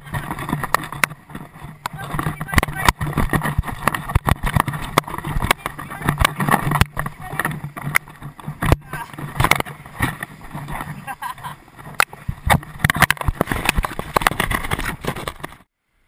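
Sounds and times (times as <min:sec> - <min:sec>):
wind rumble on microphone: 0:00.0 - 0:15.7
camera housing knocks and scrapes: 0:11.8 - 0:15.6.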